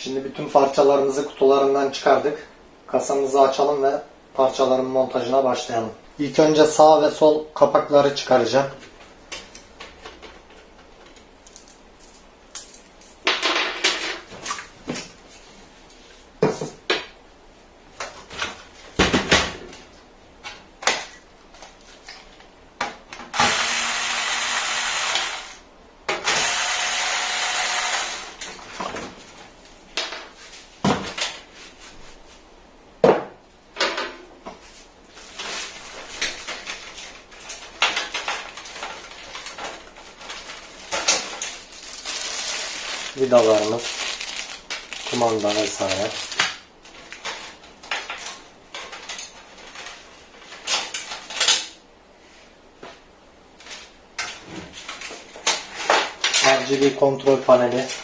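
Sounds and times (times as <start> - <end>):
loud whirring noise: 23.3 - 28.5.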